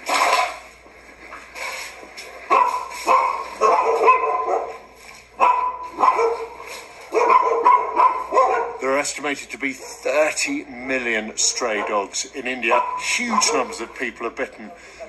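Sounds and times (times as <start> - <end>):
dogs barking: 2.4 - 9.1, 9.7 - 10.4, 11.3 - 15.0.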